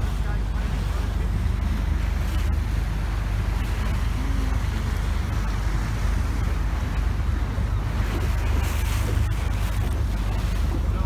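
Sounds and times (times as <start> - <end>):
boat engine rumble: 0.0 - 11.0
water rushing past hull: 0.0 - 11.0
wind buffeting microphone: 0.0 - 11.0.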